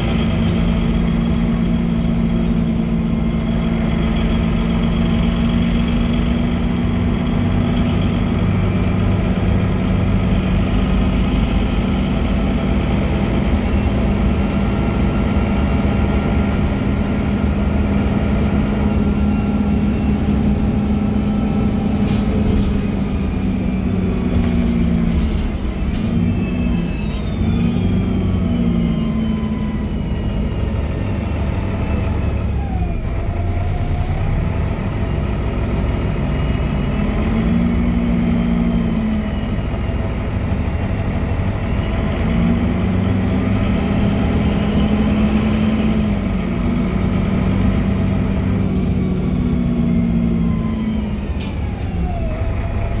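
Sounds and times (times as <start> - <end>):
bus diesel engine drone: 0.0 - 53.0
drivetrain whine: 0.0 - 53.0.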